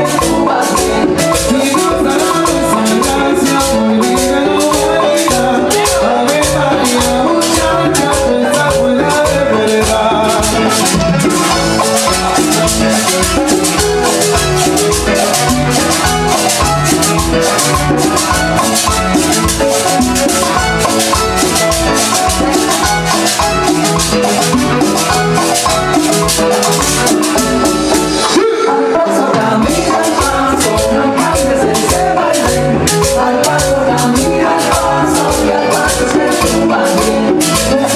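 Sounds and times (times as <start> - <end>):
salsa orchestra playing: 0.0 - 37.9.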